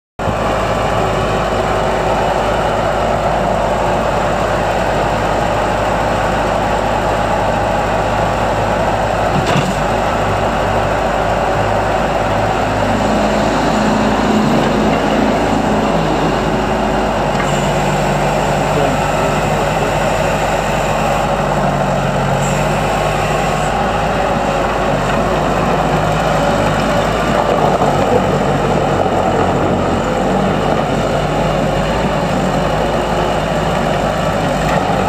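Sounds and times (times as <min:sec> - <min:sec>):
diesel engine running: 0:00.2 - 0:35.0
steady higher drone: 0:10.2 - 0:33.7.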